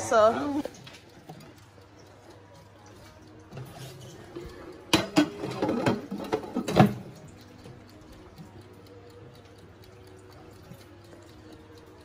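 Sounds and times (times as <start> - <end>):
dishes and cutlery clinking: 3.0 - 7.2.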